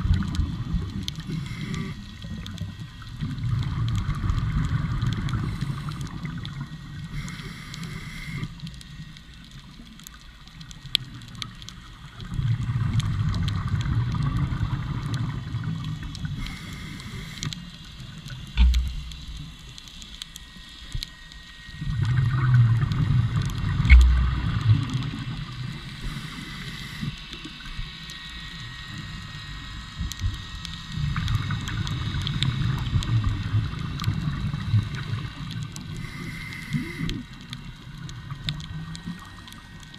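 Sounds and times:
exhaled bubbles burbling: 0.0 - 7.2, 10.9 - 19.7, 21.7 - 28.0
regulator inhale hiss: 1.2 - 2.3, 5.3 - 6.3, 7.0 - 9.0, 16.3 - 19.4, 25.6 - 27.6, 35.8 - 37.6.

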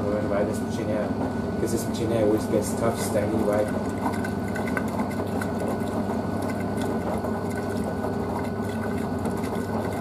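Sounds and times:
washing machine drum hum: 0.0 - 10.0
laundry sloshing in water: 3.1 - 10.0.

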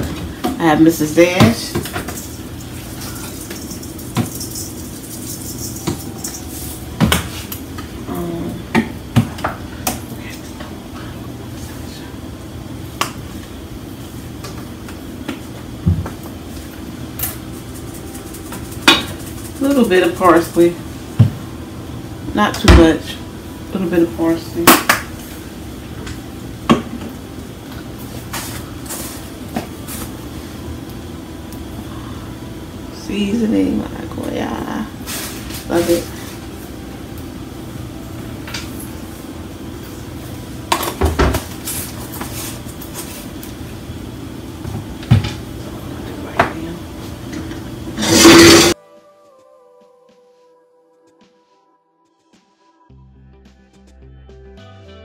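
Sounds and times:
steady low hum: 0.0 - 48.8
seasoning shaker shaken over pot: 1.8 - 7.5, 17.2 - 20.8
shaker click: 17.2 - 19.9.

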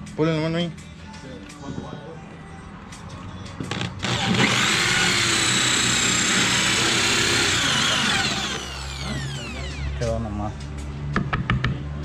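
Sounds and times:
drill clicks: 3.7 - 10.0
drill cutting through plastic: 3.7 - 10.1.

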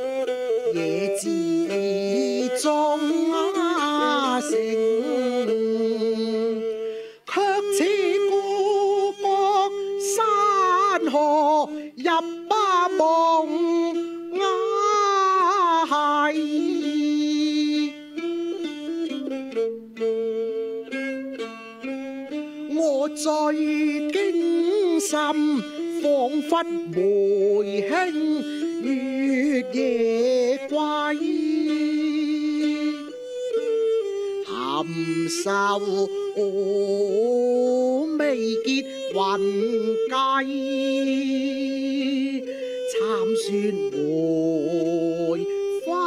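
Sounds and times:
man singing opera: 0.0 - 18.3, 22.7 - 33.1, 34.4 - 46.0
bowed fiddle: 0.0 - 46.0
plucked lute: 0.0 - 46.0.

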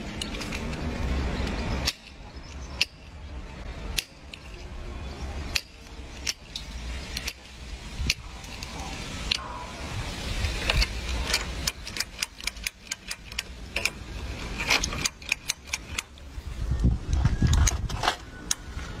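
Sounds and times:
key rattling in ignition lock: 10.6 - 16.2.

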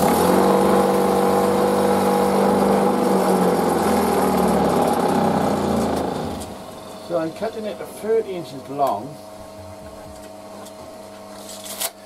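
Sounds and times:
bench grinder motor running: 0.0 - 7.7.

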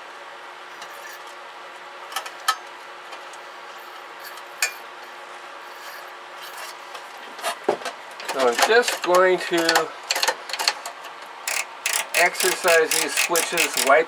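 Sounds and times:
metallic clicks and clinks: 11.5 - 14.0.

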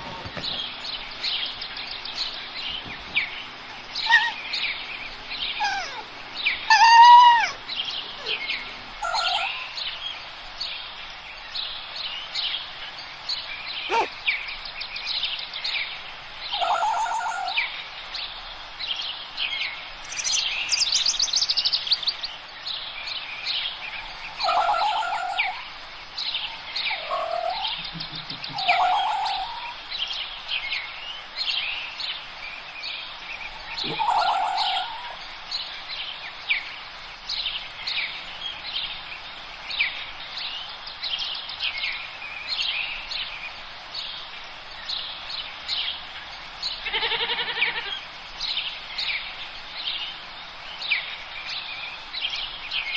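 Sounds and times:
small birds chirping: 0.0 - 52.9
louder lower bird call: 13.8 - 14.2.

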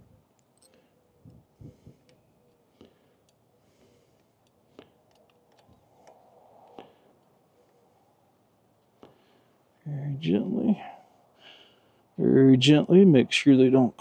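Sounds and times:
faint metal clicks and knocks: 2.0 - 7.3.

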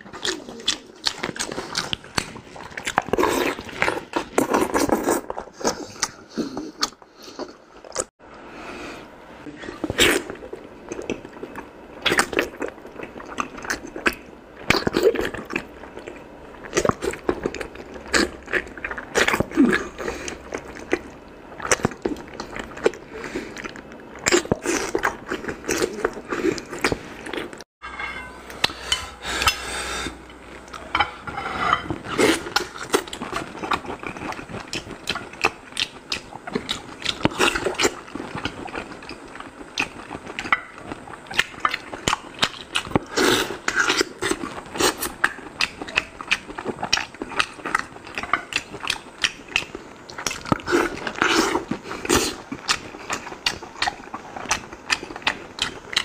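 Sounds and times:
wet chewing and lip smacking: 0.0 - 8.1, 32.1 - 56.0.

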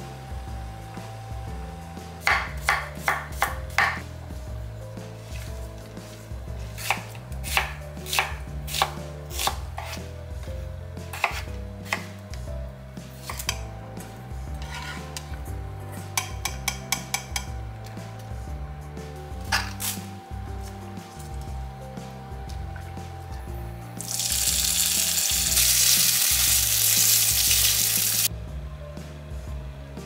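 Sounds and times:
knife chopping on wooden board: 2.2 - 4.1, 6.7 - 10.1, 11.1 - 12.2, 13.2 - 13.7, 14.6 - 15.2.

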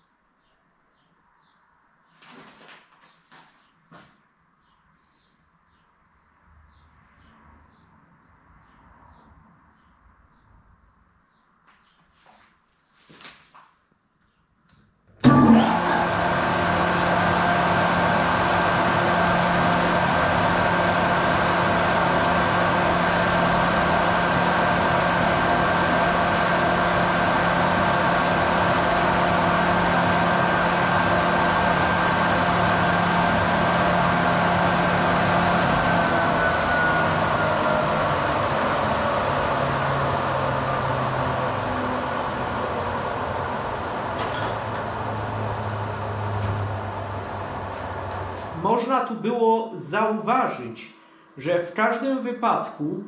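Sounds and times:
electric motor hum and fan whine: 15.1 - 50.9.

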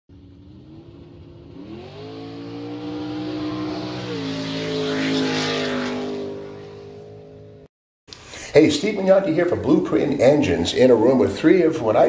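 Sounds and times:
car engine revving: 0.1 - 7.7.

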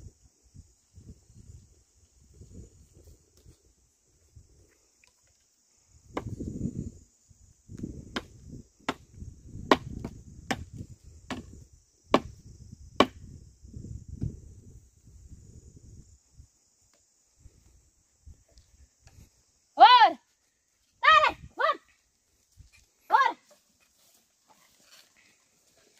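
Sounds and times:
wooden plough scraping soil: 23.5 - 25.9.

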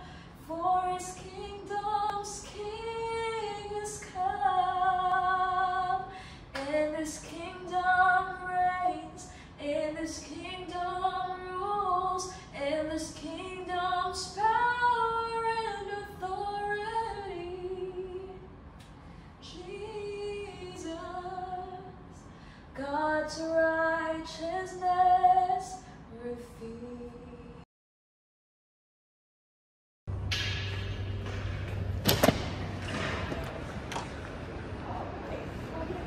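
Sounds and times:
woman singing slow worship song: 0.0 - 18.6, 19.4 - 27.6.

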